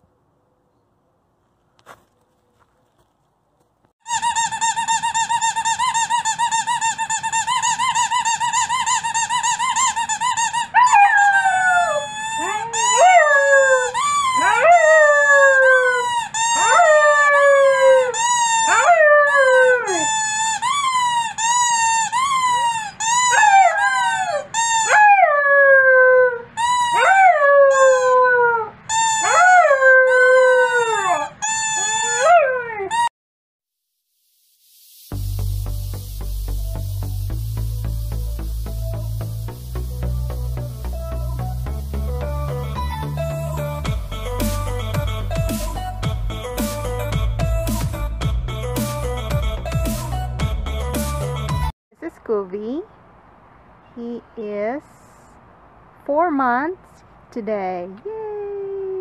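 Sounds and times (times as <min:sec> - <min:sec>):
puppy howling: 0:05.6 - 0:33.1
steady held tone: 0:34.1 - 0:50.5.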